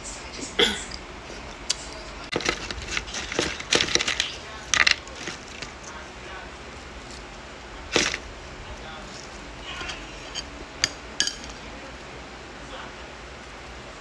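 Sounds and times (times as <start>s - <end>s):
lettuce leaves crunching: 1.3s - 10.2s
metal spoon clinking on dish: 9.7s - 11.6s.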